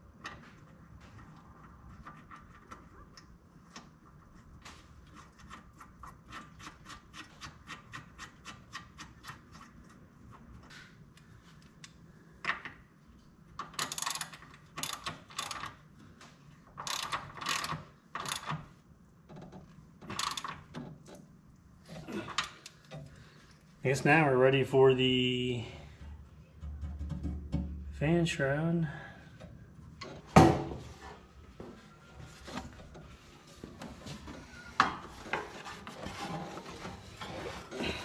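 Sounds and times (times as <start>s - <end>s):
ratchet wrench clicking: 13.8s - 15.7s, 16.8s - 18.5s.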